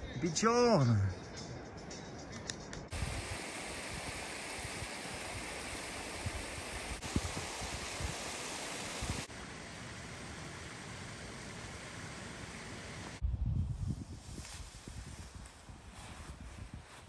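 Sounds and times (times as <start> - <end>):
wind rushing over microphone: 2.9 - 9.3, 12.9 - 17.0.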